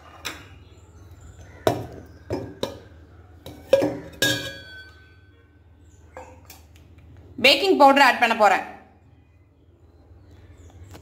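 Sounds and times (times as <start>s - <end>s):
metal bowl and cup clinking: 1.7s - 5.3s.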